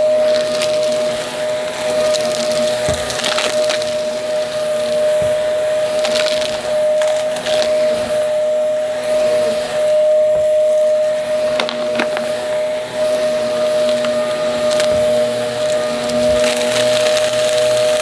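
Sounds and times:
debris crunching and crackling: 0.0s - 8.0s, 11.4s - 18.0s
vacuum cleaner motor whine: 0.0s - 18.0s.

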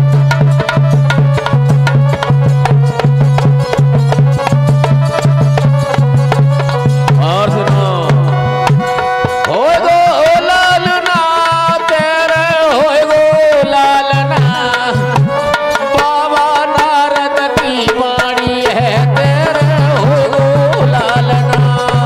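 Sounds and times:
melody with sliding notes: 0.0s - 11.1s
hand drums playing rhythm: 0.0s - 22.0s.

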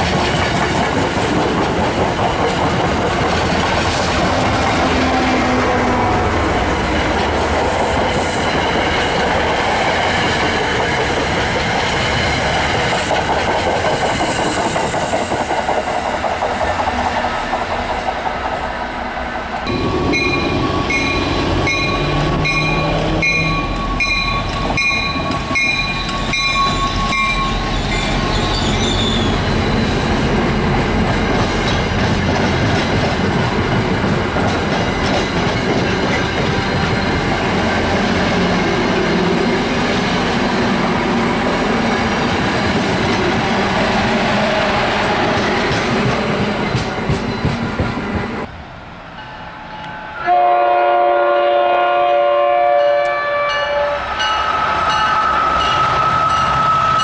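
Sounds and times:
train coaches wheels clattering: 0.0s - 19.0s, 19.6s - 48.5s
locomotive horn: 4.2s - 6.4s, 50.1s - 54.2s
locomotive bell ringing: 19.7s - 28.9s, 49.2s - 50.4s, 52.8s - 57.0s.

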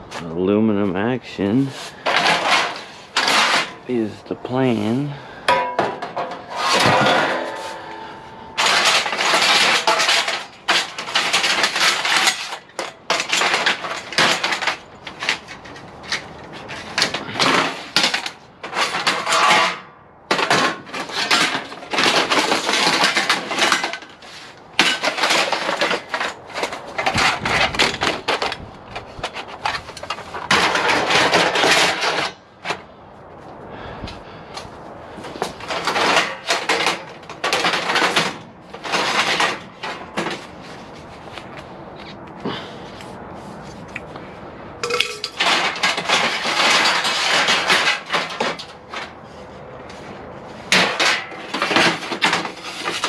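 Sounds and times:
aluminum lengths clattering and scraping: 1.5s - 33.0s, 34.6s - 53.0s.

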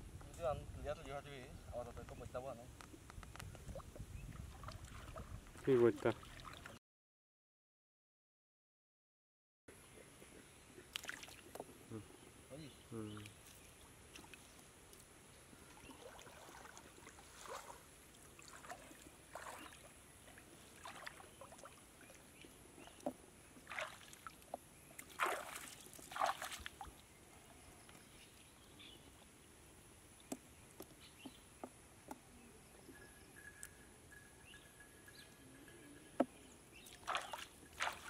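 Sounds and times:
water splashing and sloshing: 2.8s - 6.8s, 10.8s - 11.7s, 13.1s - 28.5s, 36.2s - 38.0s.

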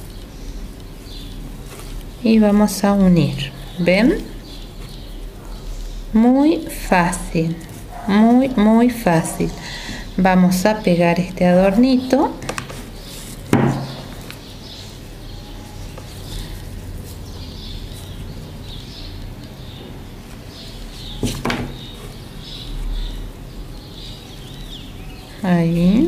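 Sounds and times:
handling noise: 11.8s - 24.6s
sharp knocks on table: 13.5s - 14.2s, 21.2s - 21.8s.

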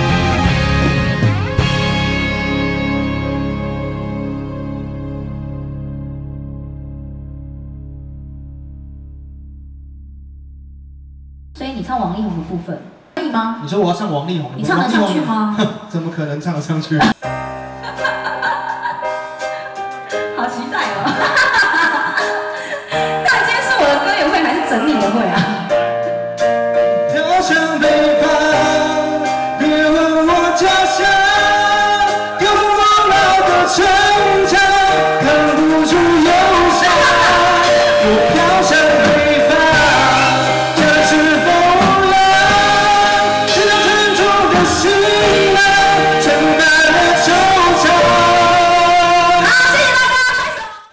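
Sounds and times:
live pop band playing: 0.0s - 6.2s, 17.0s - 50.8s
man singing into a microphone: 27.0s - 50.0s.

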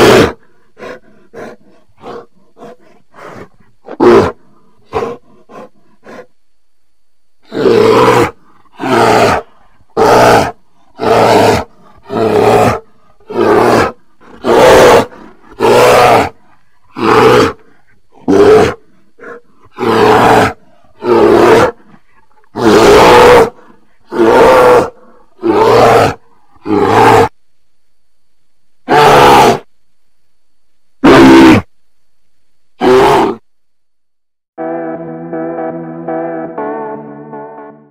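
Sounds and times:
bear roaring: 0.0s - 6.3s, 7.4s - 27.3s, 28.9s - 29.7s, 31.0s - 31.7s, 32.8s - 33.4s.

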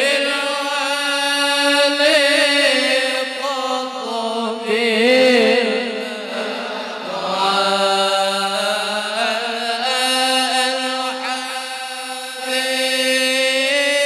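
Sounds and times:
men chanting in unison: 0.0s - 14.0s.

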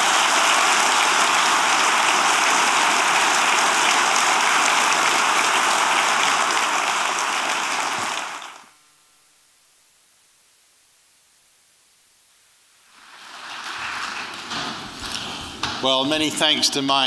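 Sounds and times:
audience applauding: 0.0s - 8.7s, 13.0s - 15.5s.

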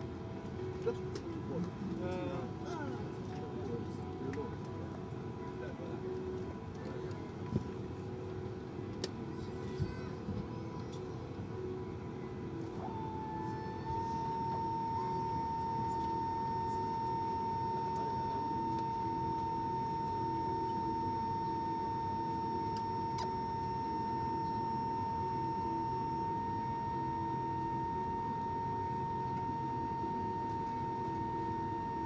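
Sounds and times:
high-pitched aircraft whine: 0.0s - 32.0s.

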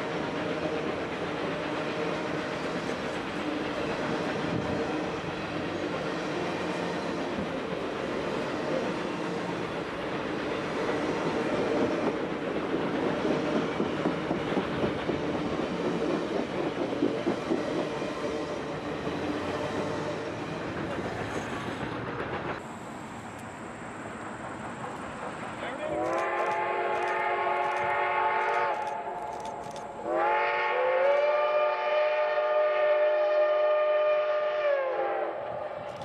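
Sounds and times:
train wheels clicking over rail joints: 0.0s - 30.1s, 35.8s - 36.0s.

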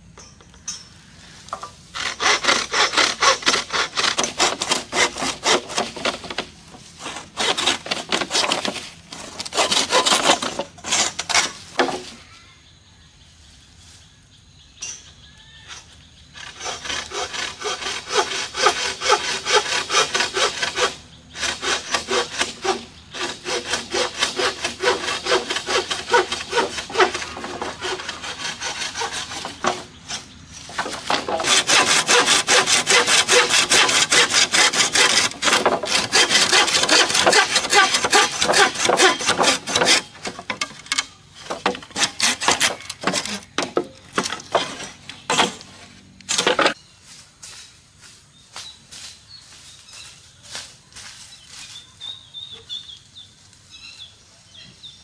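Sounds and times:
hand saw cutting bamboo: 1.5s - 12.1s, 16.3s - 46.8s.

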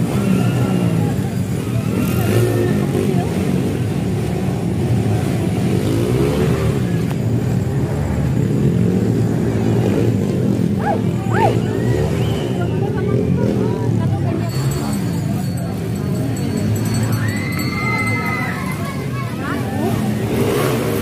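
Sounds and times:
crowd voices: 0.0s - 21.0s
motorcycle engines revving: 0.0s - 21.0s.

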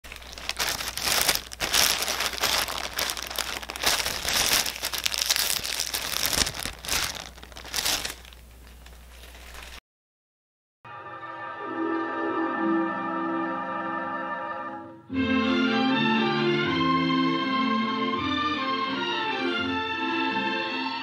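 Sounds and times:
shopping bag crinkling: 0.0s - 9.8s.

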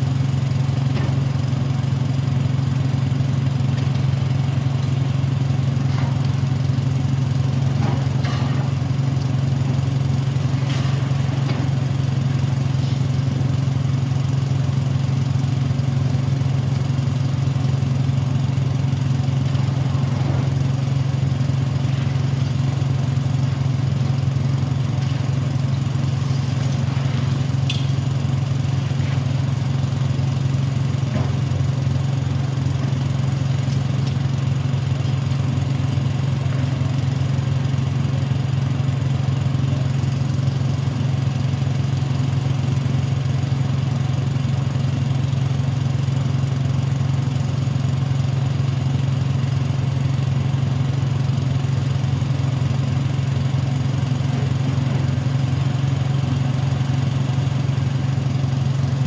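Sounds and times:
diesel engine droning: 0.0s - 47.2s.

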